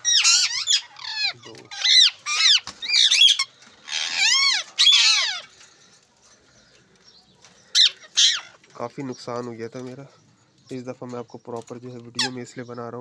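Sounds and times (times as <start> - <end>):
parakeets squawking: 0.0 - 5.6, 7.4 - 8.7, 12.0 - 12.8.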